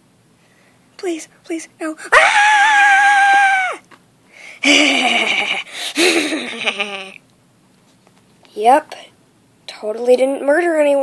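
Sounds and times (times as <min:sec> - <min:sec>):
person screaming: 0:02.1 - 0:03.8.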